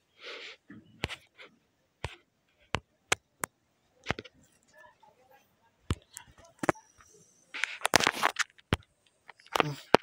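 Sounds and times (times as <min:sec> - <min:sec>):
fingertip tapping touchscreen: 0:02.0 - 0:04.4.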